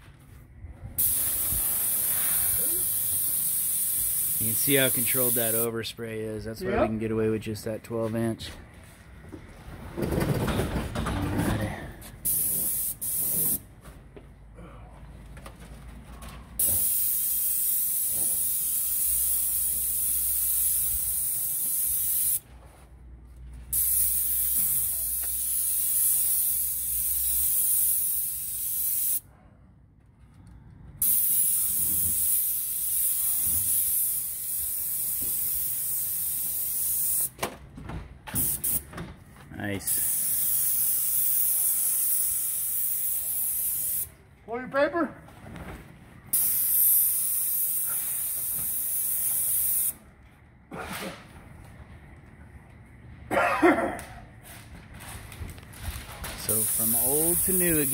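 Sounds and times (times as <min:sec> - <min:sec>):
paint spray gun hissing: 0:01.0 - 0:05.7, 0:12.3 - 0:13.6, 0:16.6 - 0:22.4, 0:23.7 - 0:29.2, 0:31.0 - 0:37.3, 0:39.9 - 0:44.1, 0:46.3 - 0:49.9, 0:56.5 - 0:57.9.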